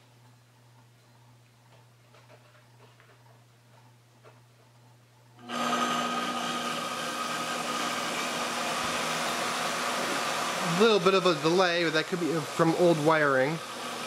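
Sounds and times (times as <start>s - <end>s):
faint hum: 0.0s - 5.5s
electric motor whining: 5.4s - 14.0s.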